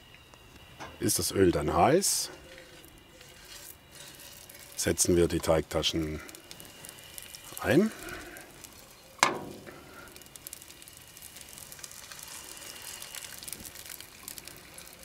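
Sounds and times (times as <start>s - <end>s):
oil sizzling in a frying pan: 2.7s - 15.0s
loud sizzle burst: 3.4s - 15.0s.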